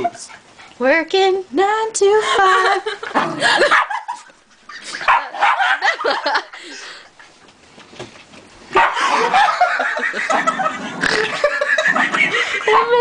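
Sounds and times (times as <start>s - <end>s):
people laughing: 2.2s - 7.1s, 9.0s - 13.0s.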